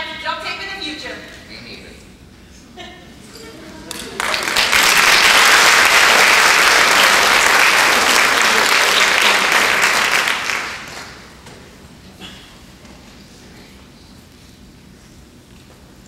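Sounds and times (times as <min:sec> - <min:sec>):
audience applauding: 0:03.8 - 0:11.3.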